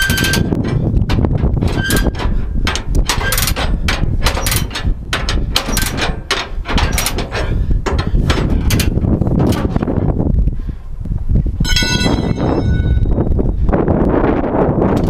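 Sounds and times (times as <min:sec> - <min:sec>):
metallic clanks on steel deck: 0:00.0 - 0:09.9
low rumble: 0:00.0 - 0:15.0.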